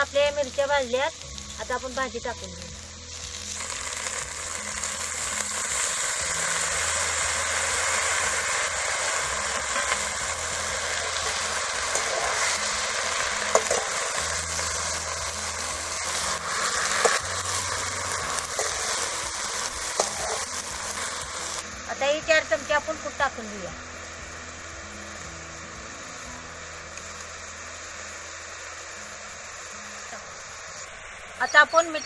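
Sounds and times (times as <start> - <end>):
leaves sizzling in hot oil: 0.0 - 32.0.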